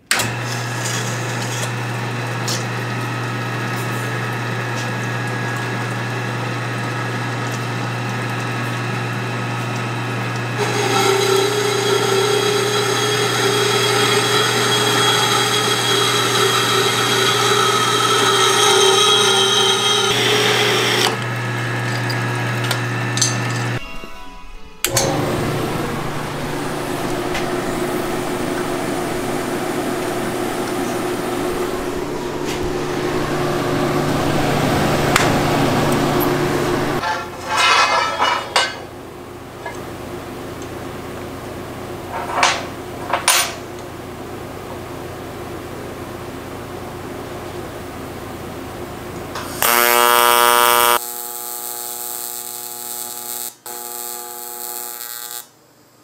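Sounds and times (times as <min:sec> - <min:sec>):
machine fans whirring and humming: 0:00.0 - 0:49.7
welding arc buzzing: 0:10.6 - 0:23.9, 0:24.8 - 0:38.7, 0:49.4 - 0:55.6.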